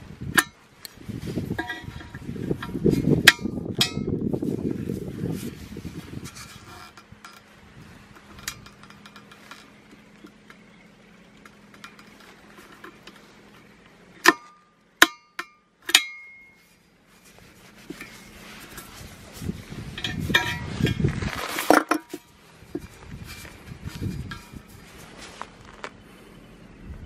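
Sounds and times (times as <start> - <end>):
faint handling noise: 0.4 - 14.8, 15.9 - 26.6
pliers clinking on metal rim: 1.5 - 4.2, 8.1 - 10.7, 14.2 - 16.6, 19.9 - 21.0.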